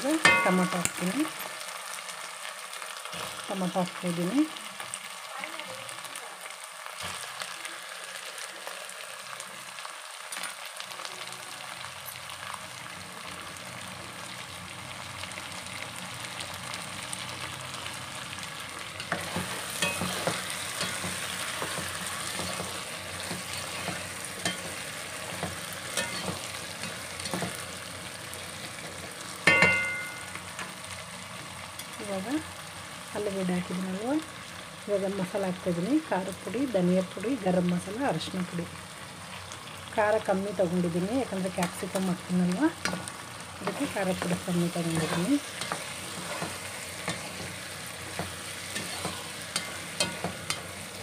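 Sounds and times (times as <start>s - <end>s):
vegetables sizzling in oil: 0.0s - 51.0s
spatula stirring and scraping pot: 18.9s - 27.8s, 42.8s - 51.0s.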